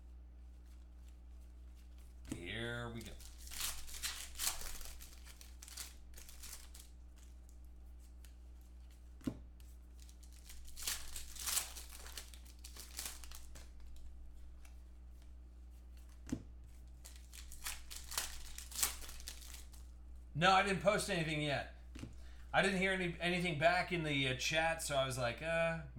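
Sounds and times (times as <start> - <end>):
foil wrappers tearing and crinkling: 2.4 - 7.6, 9.6 - 14.7, 16.9 - 19.9.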